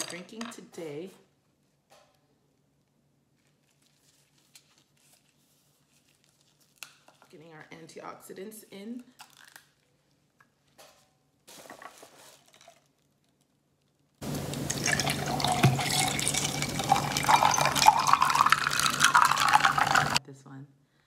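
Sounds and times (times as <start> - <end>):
faint handling rustles: 2.8 - 7.3, 9.9 - 14.2
juice pouring over ice: 12.3 - 13.1, 14.2 - 20.2.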